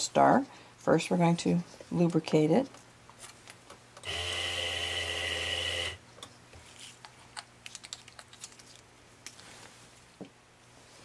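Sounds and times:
electric sharpener motor humming: 4.0 - 6.0.

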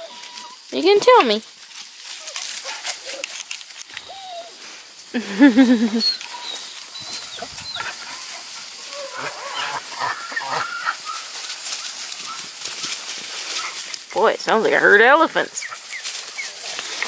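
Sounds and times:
puppies squeaking and yipping: 0.0 - 4.6, 5.7 - 14.1, 14.9 - 17.0
dry leaves rustling: 0.0 - 17.0
puppy howling: 6.1 - 11.4.

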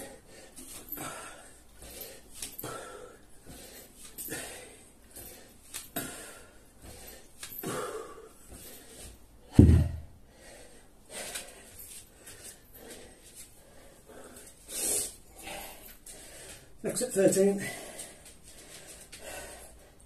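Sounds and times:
man breathing hard: 0.0 - 9.2, 10.0 - 16.8, 17.6 - 20.0
loud deep thump: 9.5 - 10.1.

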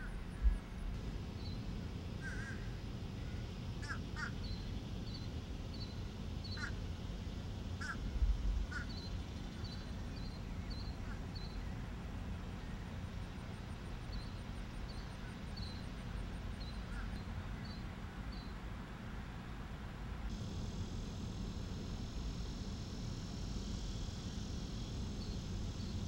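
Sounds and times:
steady low rumble: 0.0 - 26.0
birds calling: 1.4 - 6.9, 7.7 - 8.1, 8.7 - 18.6.

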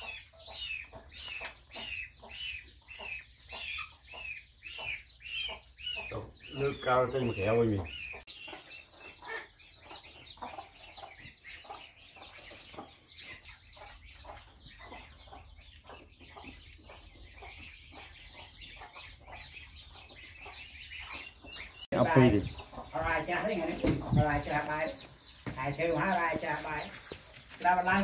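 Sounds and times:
chickens clucking: 0.0 - 28.0.

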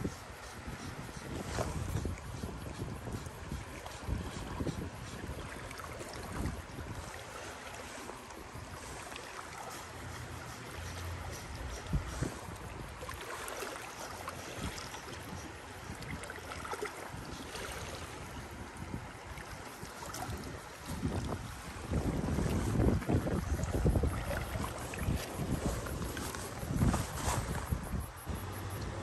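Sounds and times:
waves lapping against rocks: 0.0 - 29.0
wind buffeting microphone: 0.0 - 29.0.

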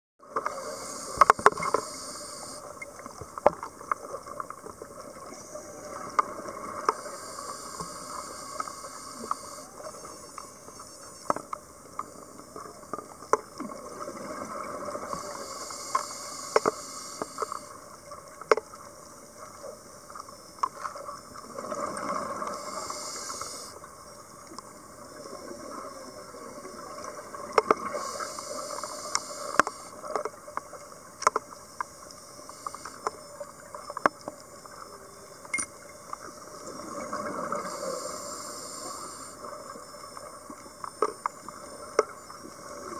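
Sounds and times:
underwater regulator breathing hiss: 0.4 - 2.7, 6.8 - 10.4, 14.9 - 17.8, 22.4 - 23.8, 27.8 - 30.0, 32.4 - 33.2, 37.4 - 39.6.

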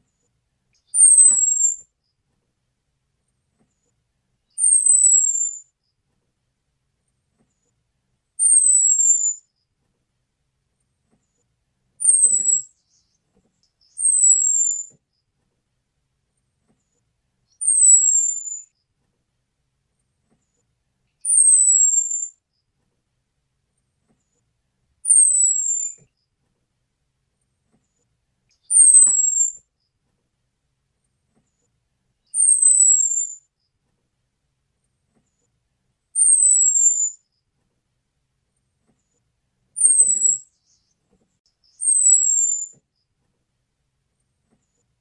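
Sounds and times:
thrush whistled call: 21.3 - 22.3, 32.4 - 33.4, 39.8 - 40.5, 41.8 - 42.7.

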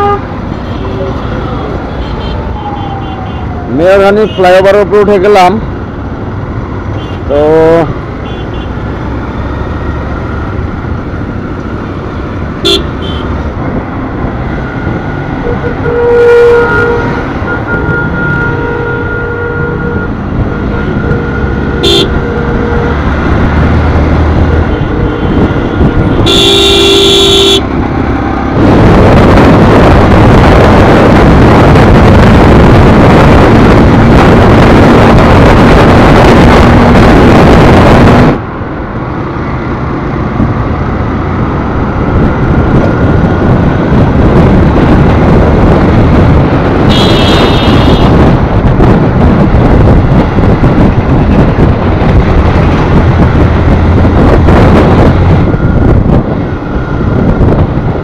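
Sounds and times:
vehicle horns honking: 0.0 - 1.0, 8.2 - 8.8, 12.6 - 13.3, 15.4 - 23.0, 24.5 - 27.7, 46.9 - 48.2
wind on microphone: 9.8 - 58.0.

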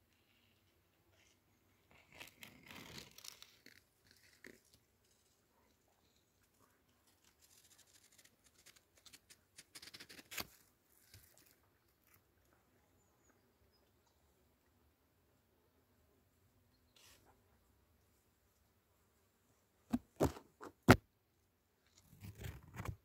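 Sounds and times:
leaves rustling against microphone: 0.1 - 12.3.

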